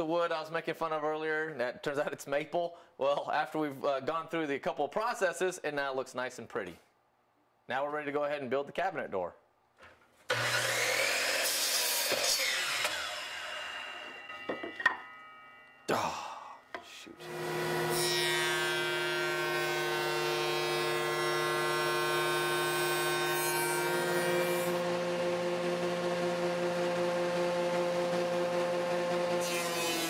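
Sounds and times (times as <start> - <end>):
wood shaper whining: 10.3 - 15.7, 16.7 - 30.0.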